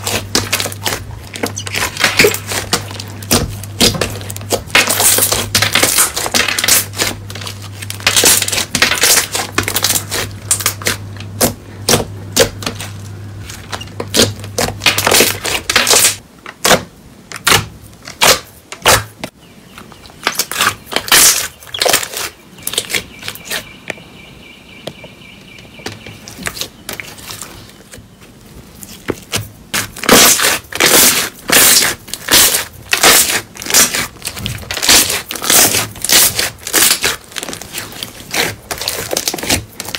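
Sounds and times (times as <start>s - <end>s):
slime crackling and popping: 0.0s - 19.1s, 28.8s - 39.9s.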